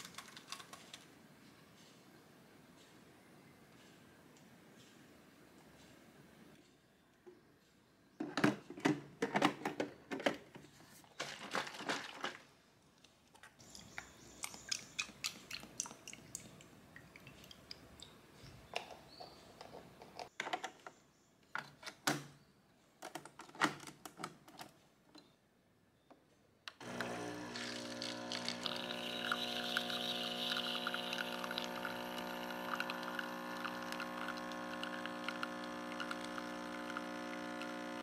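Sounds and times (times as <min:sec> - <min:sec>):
milk pouring into glass: 0:26.9 - 0:38.0.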